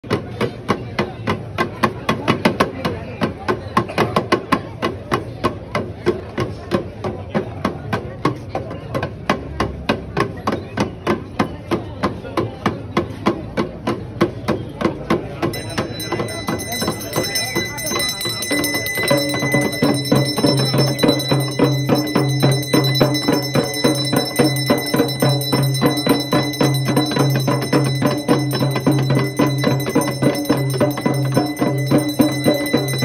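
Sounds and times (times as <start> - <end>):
ritual percussion strikes: 12.6 - 33.0.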